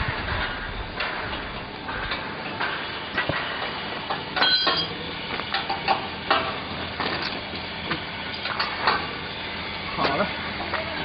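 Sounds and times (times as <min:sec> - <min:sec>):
metal clanks and knocks: 0:00.4 - 0:09.1.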